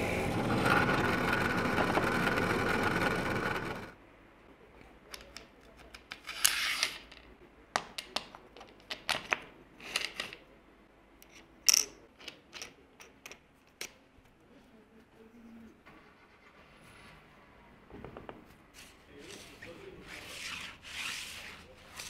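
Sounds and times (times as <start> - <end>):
metal hardware clicks and taps: 11.2 - 14.0.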